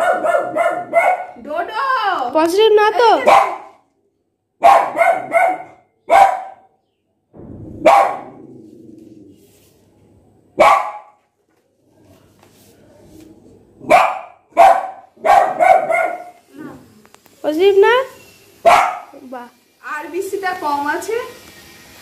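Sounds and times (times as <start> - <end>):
dog barking: 0.0 - 1.4, 3.2 - 3.8, 4.6 - 6.7, 7.8 - 8.4, 10.6 - 11.2, 13.8 - 16.4, 18.6 - 19.2.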